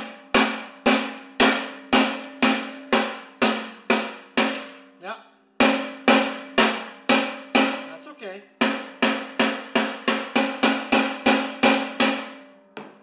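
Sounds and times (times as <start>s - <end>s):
hammer striking steel: 0.0s - 4.9s, 5.6s - 8.0s, 8.6s - 13.0s.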